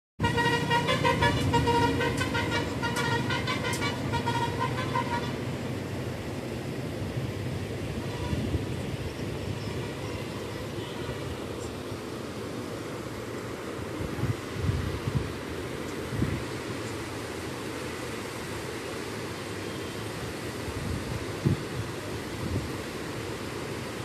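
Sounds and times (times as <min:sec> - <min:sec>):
vehicle horn short pulsing blasts: 0:00.2 - 0:05.6, 0:08.0 - 0:08.6, 0:10.0 - 0:11.3
train rumbling across bridge: 0:00.2 - 0:24.0.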